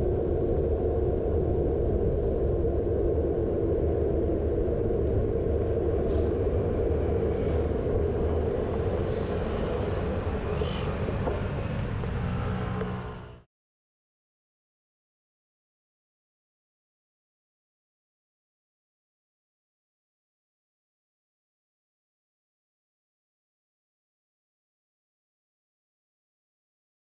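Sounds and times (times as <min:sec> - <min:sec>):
cars passing: 0:05.9 - 0:13.5.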